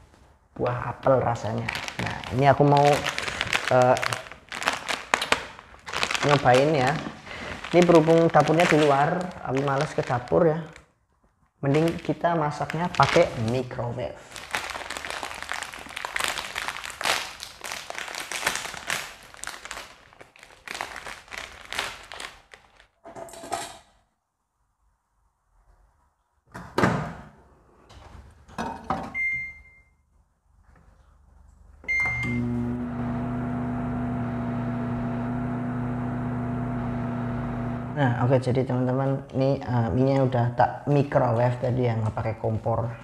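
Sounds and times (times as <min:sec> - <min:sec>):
keypad beeps: 0:29.2 - 0:29.9
microwave oven humming: 0:31.9 - 0:38.0.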